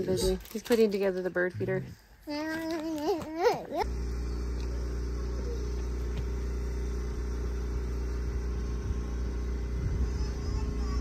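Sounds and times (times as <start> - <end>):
engine humming steadily: 3.8 - 11.0.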